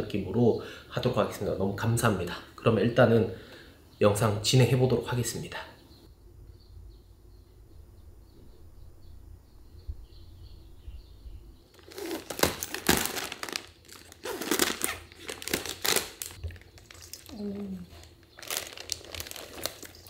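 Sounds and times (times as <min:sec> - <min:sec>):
faint low hum: 0:01.4 - 0:20.0
plastic packaging crinkling: 0:11.8 - 0:20.0.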